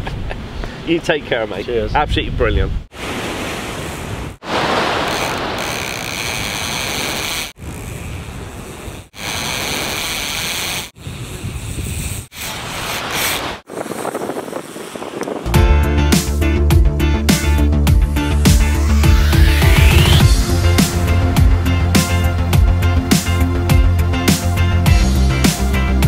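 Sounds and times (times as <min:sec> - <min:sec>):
wind: 0:00.0 - 0:15.7
sea noise on beach: 0:02.9 - 0:11.2, 0:12.3 - 0:15.4.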